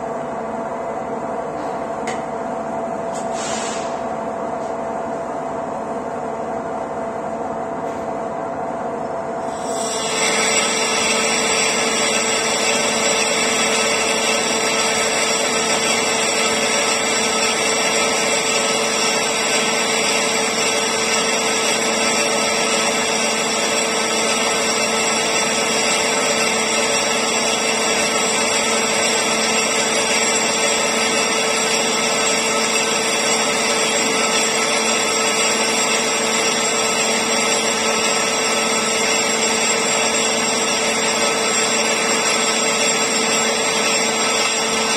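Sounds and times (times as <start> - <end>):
constant machine tone: 9.4 - 44.9
metal lathe cutting: 9.5 - 44.9.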